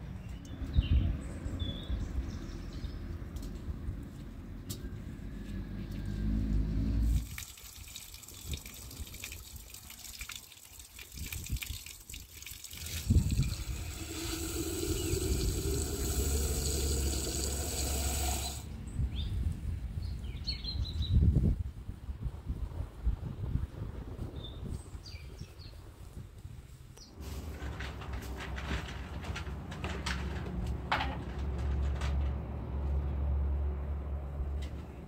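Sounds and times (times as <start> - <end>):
water running and splashing: 7.1 - 18.7.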